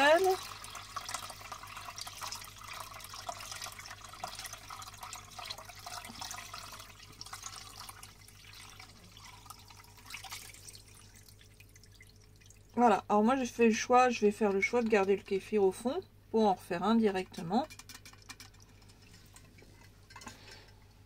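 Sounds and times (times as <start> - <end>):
liquid pouring and splashing: 0.0 - 12.8, 17.8 - 19.9.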